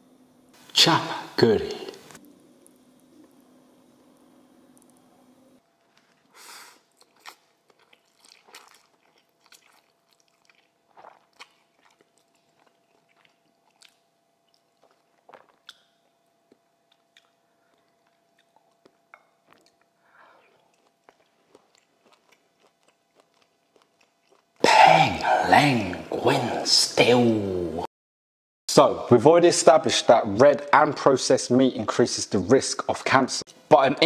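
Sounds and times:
person chewing noodles: 6.1s - 25.4s.

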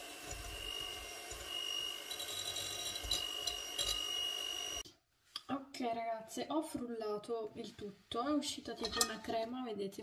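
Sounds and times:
electric hand mixer whining: 0.0s - 4.8s.

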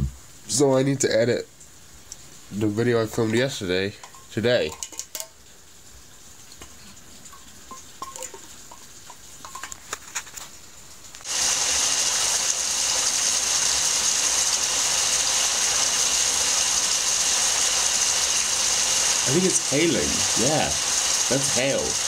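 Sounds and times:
hail and rain on a tiled roof: 6.6s - 22.0s.

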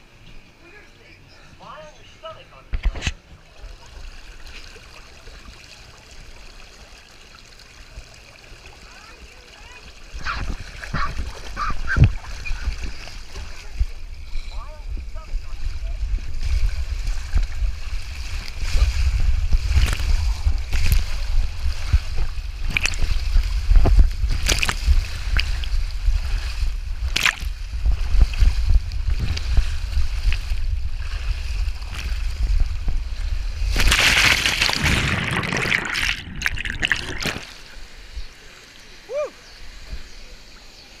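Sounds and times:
rushing water: 3.0s - 41.0s
rider sliding down waterslide: 3.4s - 41.0s
loud splash into pool: 33.7s - 37.8s.

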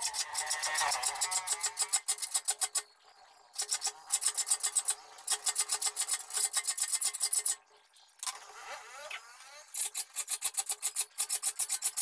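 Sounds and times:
file rasping on saw teeth: 0.0s - 2.6s.

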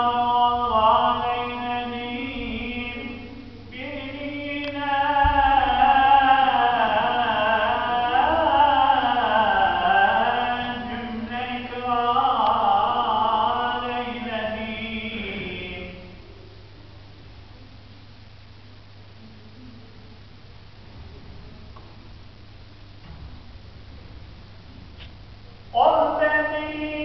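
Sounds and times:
man chanting religious recitation: 0.0s - 16.2s, 25.7s - 27.0s.

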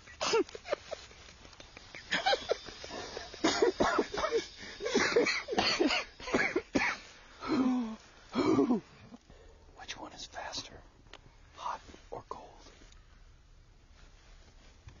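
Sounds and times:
wheezing laughter from several voices: 0.0s - 7.8s.

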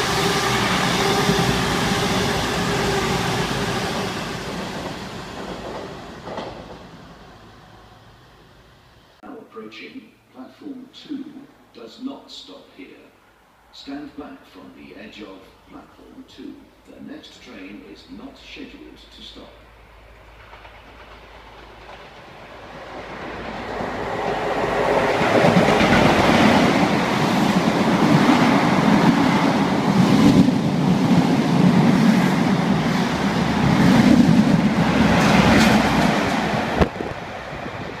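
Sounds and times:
rail clatter: 0.0s - 7.1s, 20.2s - 38.0s
passenger train passing at speed: 0.0s - 9.2s, 17.9s - 38.0s.

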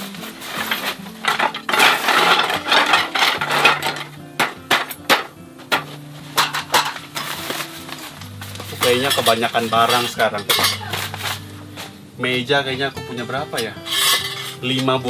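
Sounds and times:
wooden slats clattering: 0.4s - 11.4s.

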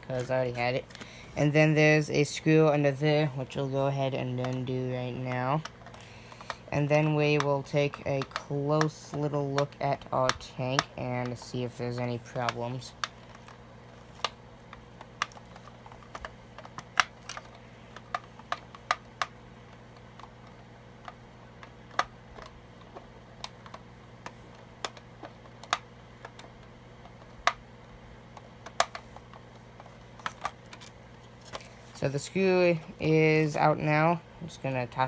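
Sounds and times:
plastic clicks and taps: 4.4s - 13.6s, 14.2s - 27.6s, 28.3s - 30.9s.

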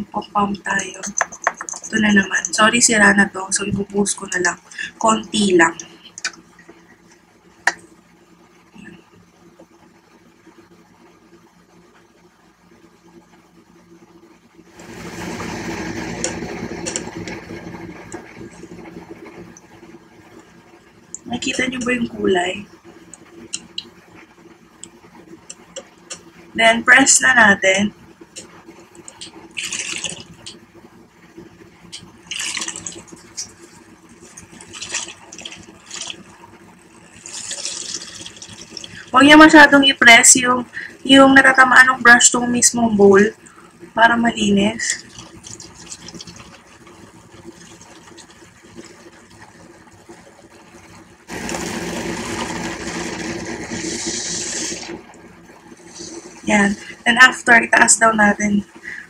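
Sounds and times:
electric motor hum: 14.6s - 23.8s, 27.6s - 39.8s, 44.4s - 57.4s
water swishing in glass bowl: 28.4s - 30.6s, 32.2s - 39.6s, 44.8s - 57.0s
small motor whirring: 51.3s - 55.1s.

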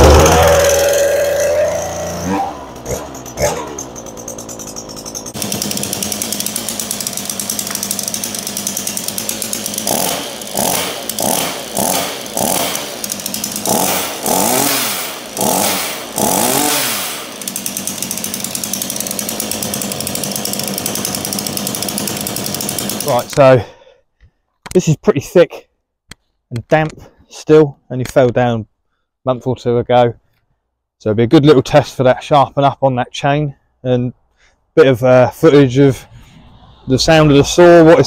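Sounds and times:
chainsaw idling and revving: 0.0s - 23.6s.

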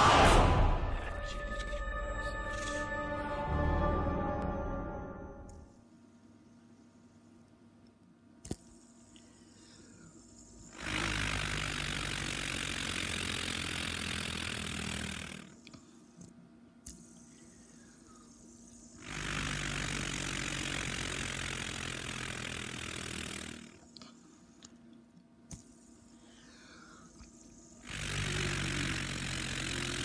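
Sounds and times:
low drone: 0.0s - 5.6s.

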